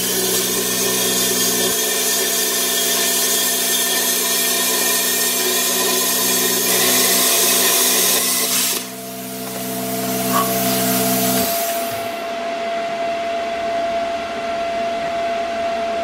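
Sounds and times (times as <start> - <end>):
plasma cutter hissing: 0.0 - 12.3.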